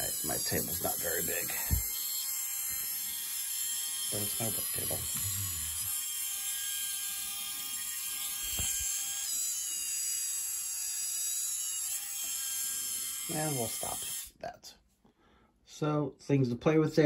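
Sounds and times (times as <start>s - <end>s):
servo motors whining: 4.4s - 6.0s.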